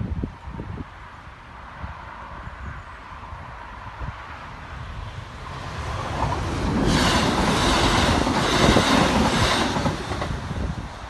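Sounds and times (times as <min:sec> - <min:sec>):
train wheels clattering on rails: 0:06.0 - 0:10.8.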